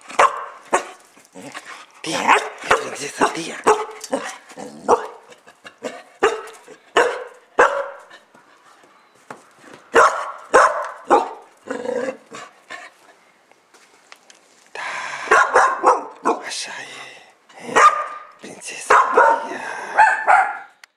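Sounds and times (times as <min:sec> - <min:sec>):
young dog barking: 0:00.1 - 0:01.0, 0:02.1 - 0:08.1, 0:09.9 - 0:11.5, 0:15.2 - 0:16.5, 0:17.6 - 0:20.8.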